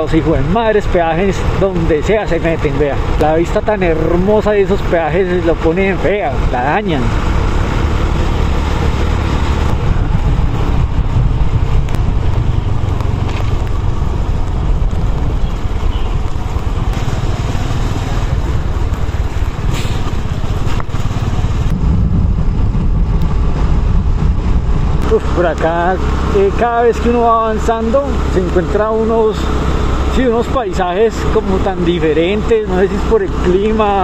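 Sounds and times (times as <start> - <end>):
motorcycle engine running: 0.0 - 34.0
road noise: 0.0 - 34.0
wind rush: 6.0 - 30.1.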